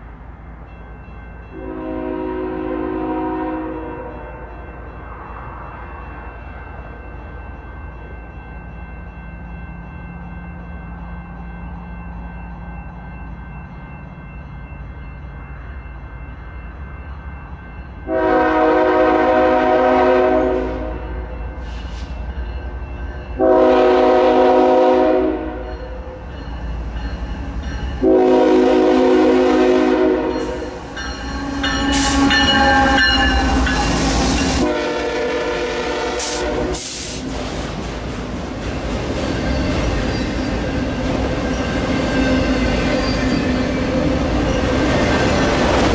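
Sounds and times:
diesel locomotive rumbling: 0.0s - 45.9s
train clattering past: 0.0s - 45.9s
train air horn blasts: 1.5s - 4.5s, 18.1s - 22.0s, 23.4s - 25.7s, 28.0s - 37.2s.

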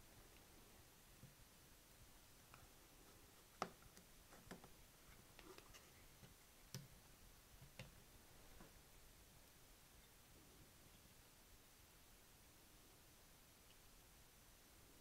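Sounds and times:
faint clicks and light taps: 2.4s - 8.8s.

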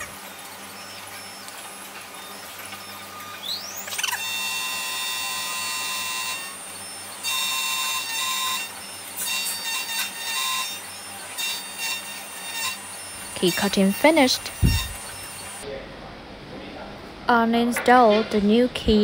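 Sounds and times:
key cutting machine whining: 0.0s - 15.6s.

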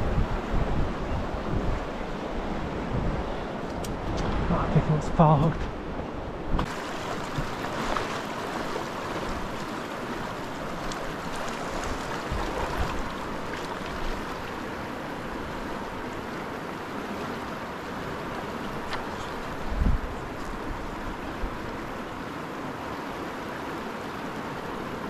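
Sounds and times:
river rushing over rocks: 6.6s - 25.0s.

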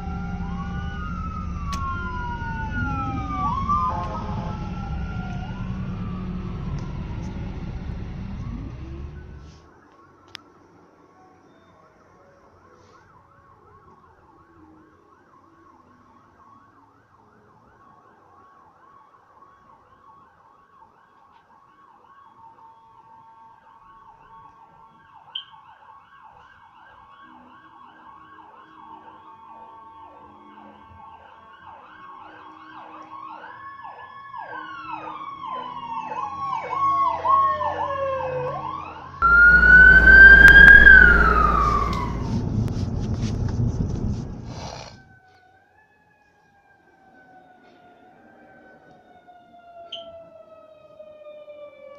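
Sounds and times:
heavy rumbling noise: 0.0s - 9.5s, 39.2s - 44.9s
ambulance siren wailing: 0.0s - 10.6s, 12.1s - 43.4s, 45.1s - 51.9s.

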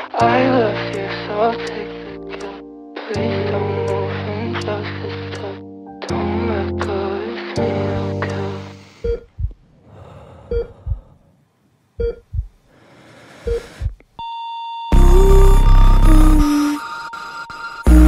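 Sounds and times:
music: 0.0s - 8.9s, 14.9s - 16.9s
heart monitor beeps: 9.0s - 9.6s, 10.5s - 11.1s, 12.0s - 12.5s, 13.4s - 18.0s
heartbeat thump: 9.0s - 9.6s, 10.5s - 11.2s, 12.0s - 12.6s, 13.4s - 14.0s.

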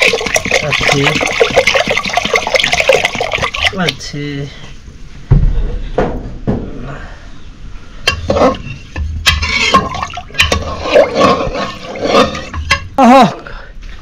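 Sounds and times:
water sloshing in a pot: 0.0s - 4.1s, 8.0s - 13.0s.

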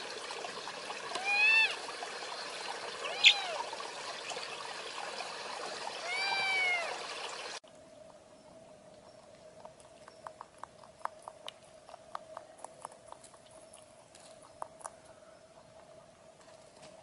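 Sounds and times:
stream water running: 0.0s - 8.3s
faint steady hum: 0.0s - 17.0s
kitten meowing: 1.2s - 1.8s, 3.0s - 3.7s, 6.0s - 7.0s.

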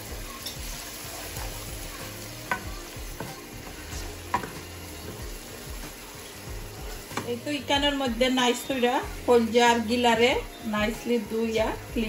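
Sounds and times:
spoon stirring in a pan: 0.0s - 7.4s
onions sizzling in a frying pan: 0.0s - 12.0s
spoon knocking against a pan: 2.4s - 3.4s, 4.3s - 5.2s.

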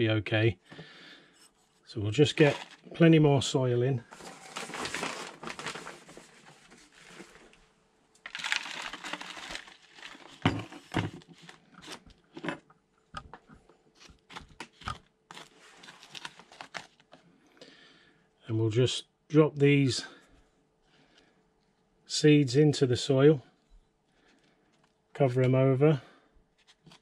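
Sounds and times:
soil pouring rustle: 2.3s - 3.0s, 8.2s - 10.4s.

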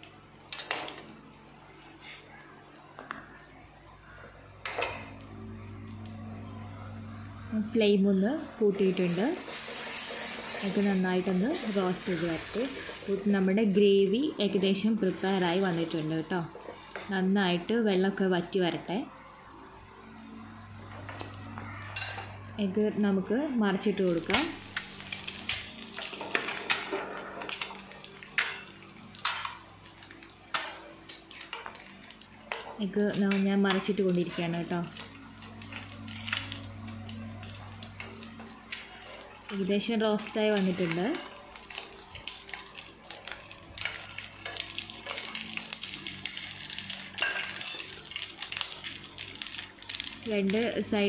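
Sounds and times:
steady low hum: 1.0s - 47.1s
butter sizzling in a pan: 8.0s - 16.3s, 24.0s - 51.0s
utensils clinking and scraping pan: 9.0s - 13.2s, 47.2s - 48.2s.

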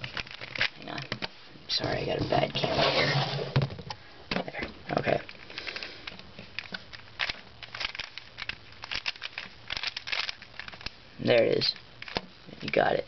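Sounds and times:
puzzle cube clicking: 0.1s - 1.3s, 5.1s - 13.0s.

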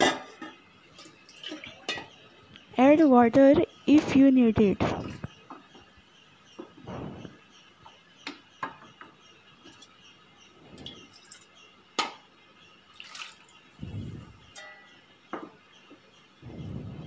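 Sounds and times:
utensils clinking on steel pot: 0.0s - 2.2s, 14.5s - 14.9s.

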